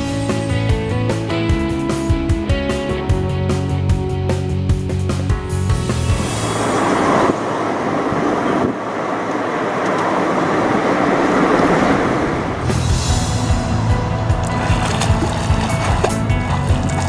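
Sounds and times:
music: 0:00.0 - 0:07.3, 0:12.6 - 0:17.0
car road noise: 0:04.5 - 0:17.0.

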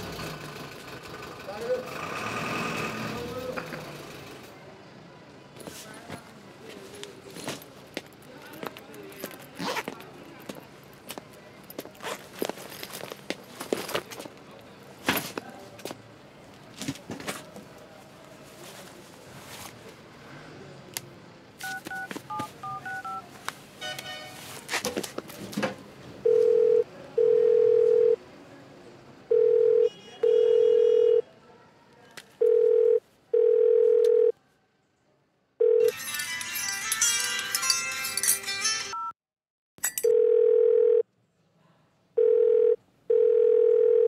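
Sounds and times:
phone keypad beeps: 0:21.6 - 0:23.2
telephone ringback tone: 0:21.6 - 0:23.2, 0:26.2 - 0:28.2, 0:29.3 - 0:31.2, 0:32.4 - 0:34.3, 0:35.6 - 0:36.0, 0:40.0 - 0:41.0, 0:42.2 - 0:44.0
music: 0:35.9 - 0:39.1.

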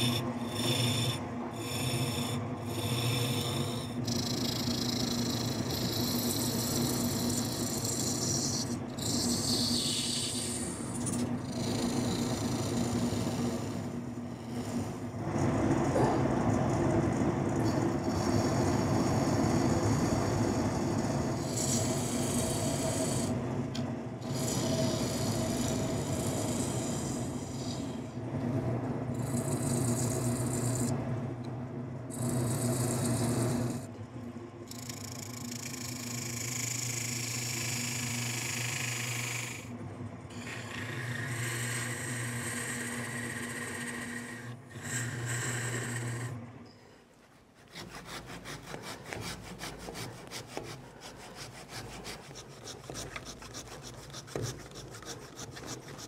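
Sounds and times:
tool cutting hiss on wood: 0:00.0 - 0:14.8, 0:18.0 - 0:23.4, 0:34.7 - 0:39.7, 0:40.3 - 0:46.4, 0:47.6 - 0:56.0
wood lathe humming: 0:00.0 - 0:15.0, 0:34.7 - 0:46.5, 0:47.6 - 0:56.0
blade rasping in groove: 0:47.6 - 0:56.0.

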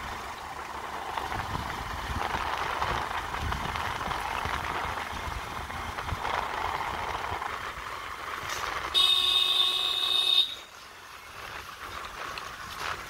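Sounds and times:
wind and road noise: 0:00.0 - 0:13.0
motorcycle horn beep: 0:08.9 - 0:10.6.

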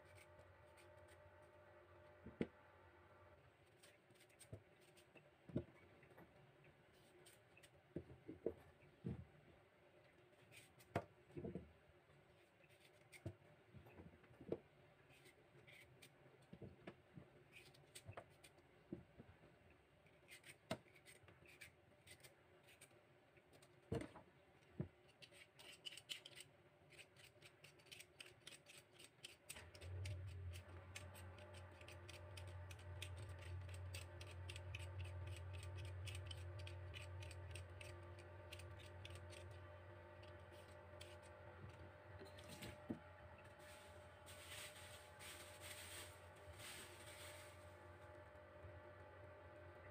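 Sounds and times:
low steady hum: 0:00.0 - 0:25.7, 0:26.4 - 0:49.9
vegetable peeler scraping: 0:25.2 - 0:41.4.

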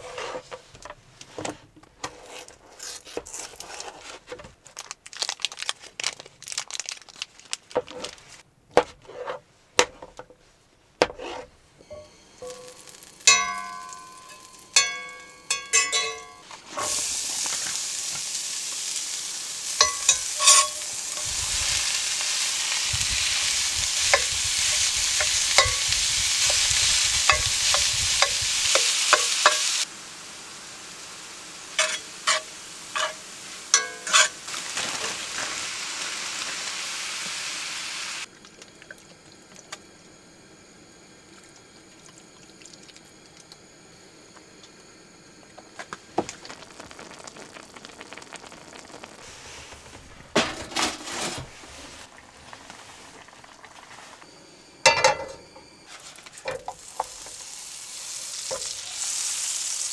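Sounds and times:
food sizzling in a pan: 0:11.2 - 0:38.3, 0:39.1 - 0:59.9
metal utensil clinking on pan: 0:11.9 - 0:16.5, 0:19.8 - 0:21.2, 0:24.1 - 0:26.6, 0:27.3 - 0:29.7, 0:31.8 - 0:32.4, 0:33.0 - 0:34.4, 0:54.9 - 0:55.4.

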